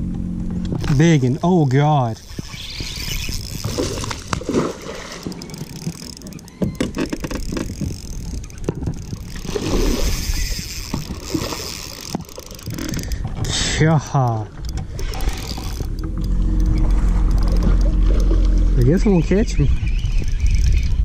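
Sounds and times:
steady low rumble: 0.0s - 2.5s, 12.2s - 21.0s
fishing reel clicks and knocks: 0.6s - 19.1s.

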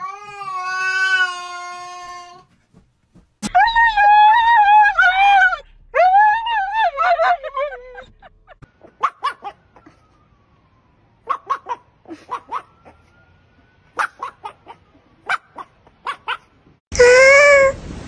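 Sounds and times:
dog barking: 9.0s - 9.6s, 11.2s - 13.0s, 14.0s - 16.5s.

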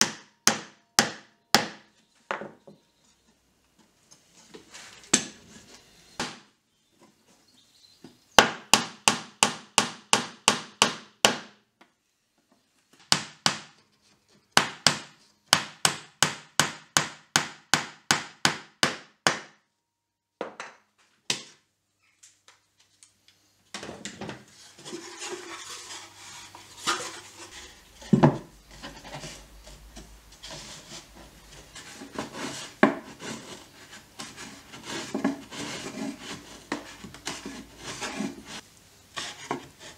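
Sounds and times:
chisel rasping across wood: 30.4s - 38.6s.

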